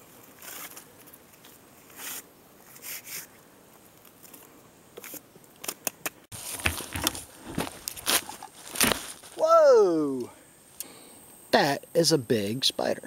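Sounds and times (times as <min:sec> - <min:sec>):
leaves and stems rustling: 0:00.0 - 0:10.3.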